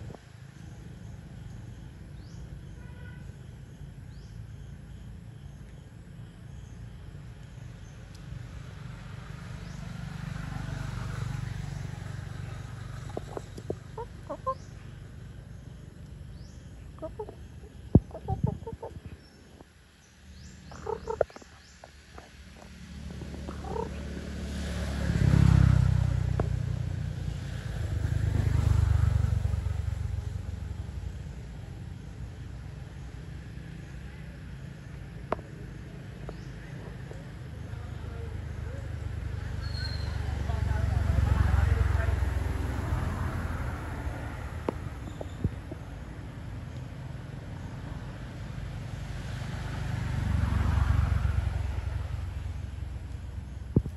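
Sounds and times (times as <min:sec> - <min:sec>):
chickens clucking: 0:13.0 - 0:14.8, 0:17.0 - 0:19.2, 0:20.7 - 0:24.2.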